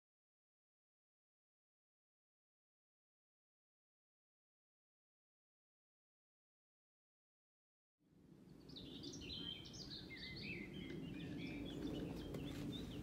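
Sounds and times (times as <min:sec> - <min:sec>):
birds singing and chirping: 0:08.5 - 0:13.0.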